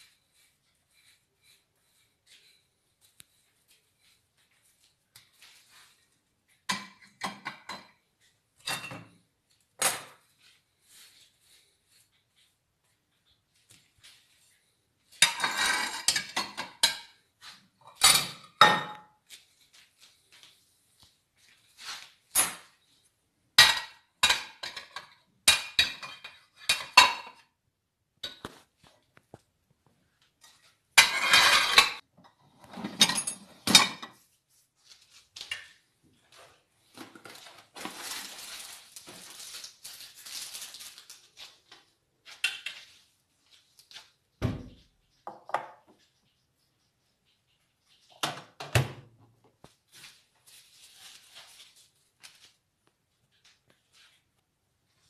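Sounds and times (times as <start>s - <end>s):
ceramic plates clinking: 31.0s - 32.0s.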